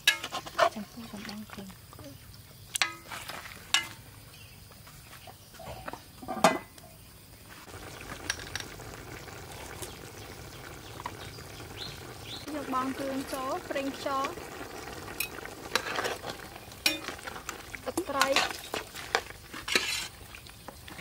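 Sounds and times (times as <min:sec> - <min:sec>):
metal spatula scraping a pot: 0:00.0 - 0:00.9, 0:15.2 - 0:17.5, 0:18.1 - 0:20.3
meat sizzling: 0:07.6 - 0:21.0.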